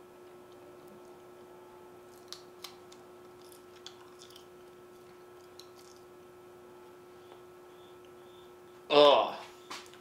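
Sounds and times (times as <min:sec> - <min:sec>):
person chewing jerky: 0:02.0 - 0:06.3.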